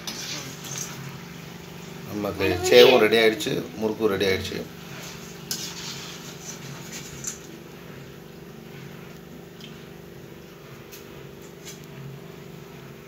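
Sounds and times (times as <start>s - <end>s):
food frying in hot oil: 0.0s - 2.2s, 4.1s - 13.0s
slotted spoon scraping pan: 5.2s - 7.1s.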